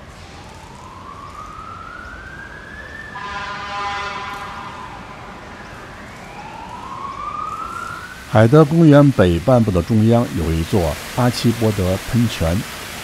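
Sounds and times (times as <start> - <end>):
emergency vehicle siren wailing: 0.0 - 12.6
many-toned horn: 3.2 - 5.5.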